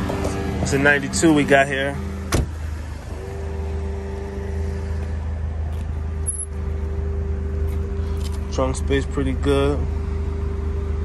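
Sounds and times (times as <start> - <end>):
car door shutting: 2.3 - 2.6.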